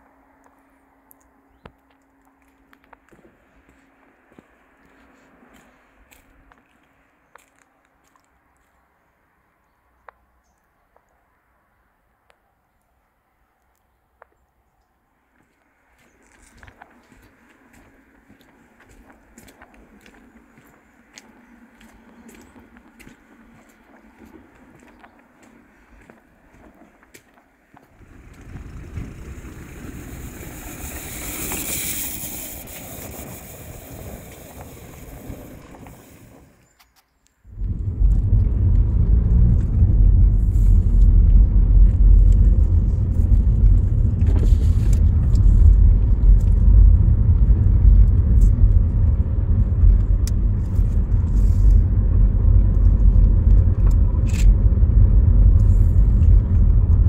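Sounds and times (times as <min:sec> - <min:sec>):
car engine and tyre rumble: 0:00.0 - 0:14.6, 0:15.2 - 0:57.0
hiss: 0:28.6 - 0:36.5.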